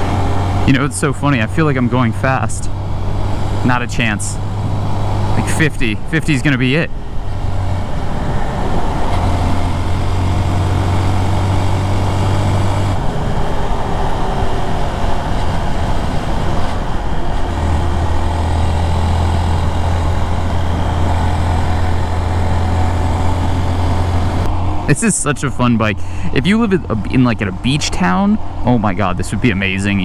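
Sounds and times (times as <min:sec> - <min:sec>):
motorcycle engine cruising: 0:00.0 - 0:30.0
wind rush: 0:06.8 - 0:27.1.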